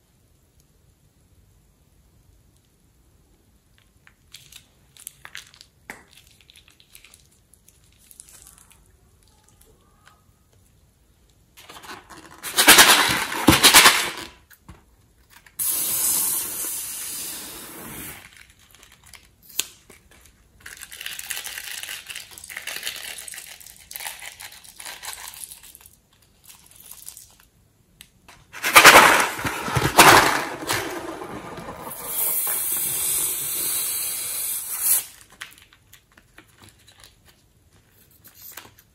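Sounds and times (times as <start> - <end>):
airy hissing: 15.6 - 18.2, 31.9 - 35.1.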